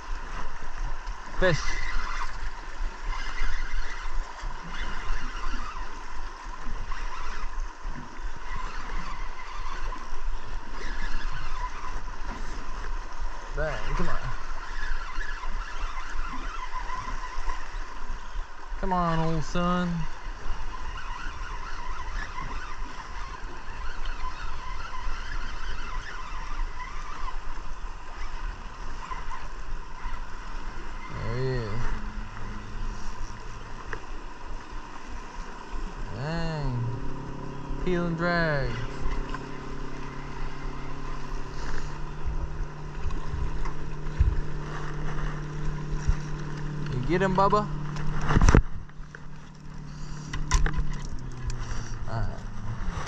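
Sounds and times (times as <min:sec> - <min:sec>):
water: 0:00.0 - 0:53.0
fishing reel whining: 0:00.1 - 0:53.0
wind on microphone: 0:20.2 - 0:53.0.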